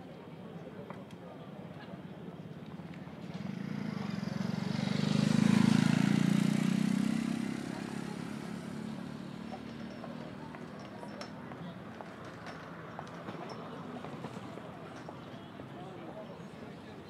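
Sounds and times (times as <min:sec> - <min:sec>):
vehicle driving past: 0:03.3 - 0:10.4.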